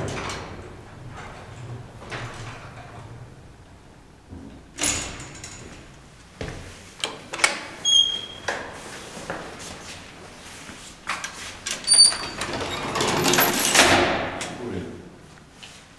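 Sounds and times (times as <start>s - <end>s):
heavy metallic door clunk: 0.0s - 6.0s, 11.8s - 14.6s.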